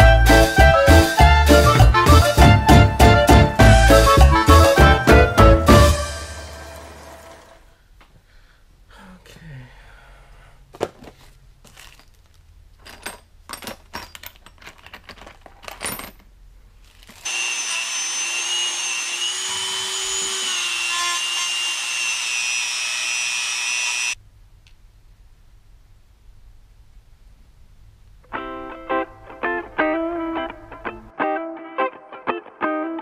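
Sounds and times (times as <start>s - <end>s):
clicks and knocks of parts: 10.8s - 17.2s
rotary tool grinding: 17.0s - 24.2s.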